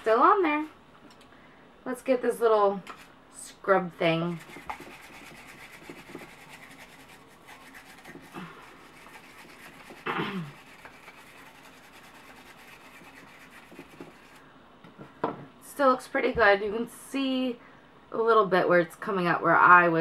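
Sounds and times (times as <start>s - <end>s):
brush scratching on plastic: 4.2s - 14.4s.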